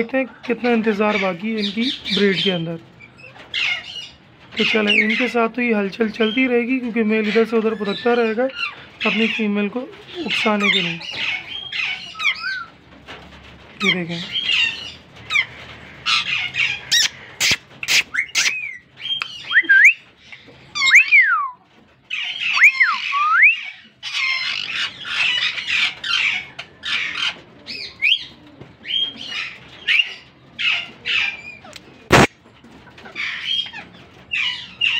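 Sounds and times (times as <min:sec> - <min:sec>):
parakeets calling: 0:00.0 - 0:12.8, 0:13.8 - 0:21.2, 0:22.1 - 0:32.3, 0:33.0 - 0:34.9.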